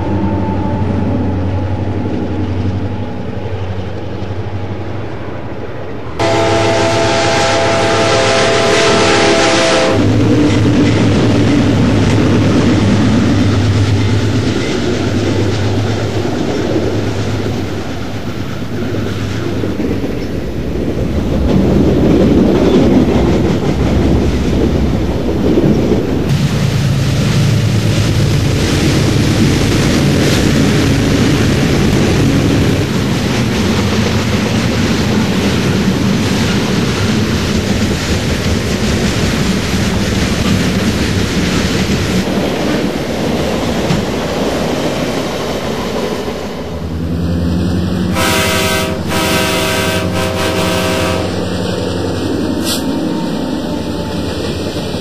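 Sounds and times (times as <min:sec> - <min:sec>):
model train diesel drone: 0:00.0 - 0:55.0
clickety-clack of cars on track: 0:09.8 - 0:46.7.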